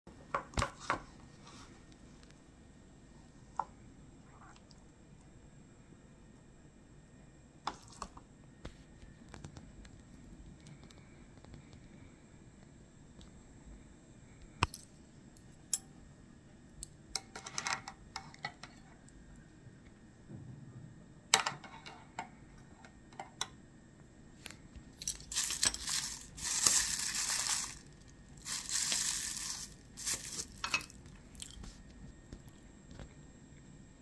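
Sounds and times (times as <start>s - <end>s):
packaging crinkling and tearing: 25.0s - 31.6s.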